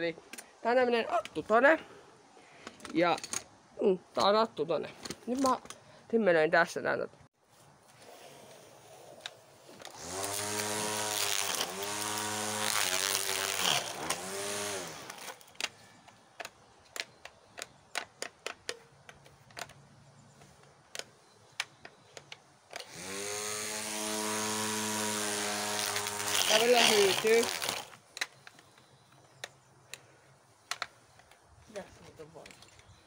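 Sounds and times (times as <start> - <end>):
string trimmer motor whining: 9.8 - 15.7, 22.8 - 28.0.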